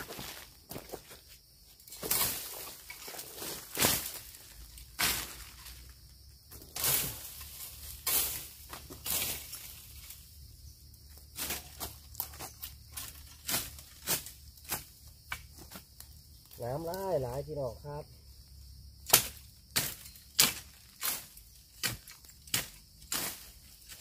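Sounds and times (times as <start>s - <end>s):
spade chopping into soil: 19.0s - 23.5s.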